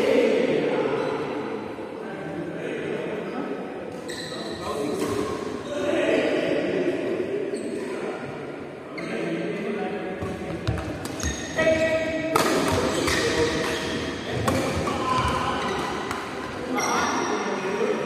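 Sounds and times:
voices in background: 0.0s - 18.0s
racket striking shuttlecock: 12.3s - 14.9s.

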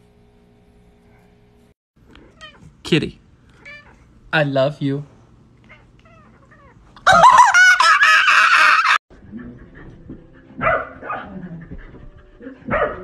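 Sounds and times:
dog yipping: 10.6s - 11.3s, 12.7s - 13.0s.

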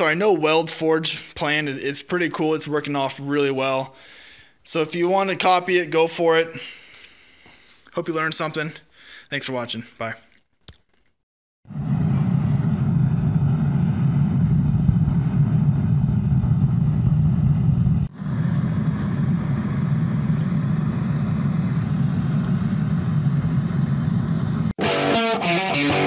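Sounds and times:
forge burner roaring: 11.7s - 24.8s.

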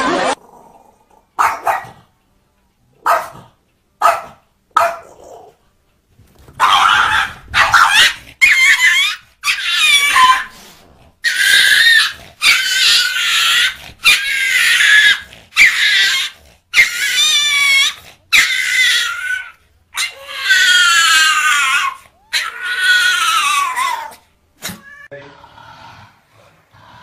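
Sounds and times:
animal high-pitched cries: 6.6s - 10.6s, 11.2s - 25.2s.

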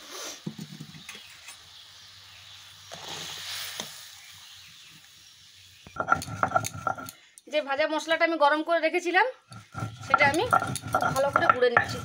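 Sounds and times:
knocks and clinks: 6.0s - 7.2s
gravy simmering: 9.4s - 12.0s.

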